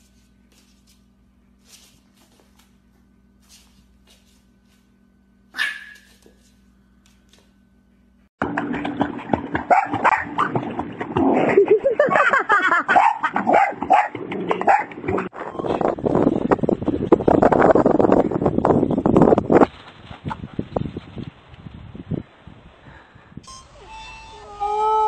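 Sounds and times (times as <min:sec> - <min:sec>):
small dog barking: 0:05.5 - 0:06.3, 0:09.7 - 0:10.3, 0:12.9 - 0:14.1
water splashing in pool: 0:08.4 - 0:15.3.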